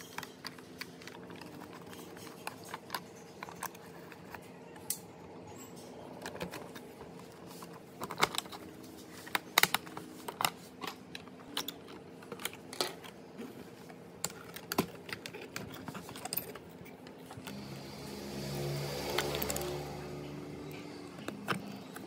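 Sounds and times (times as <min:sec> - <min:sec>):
plastic housing clicking and clacking: 0:00.0 - 0:05.0, 0:07.6 - 0:08.6, 0:14.2 - 0:17.6.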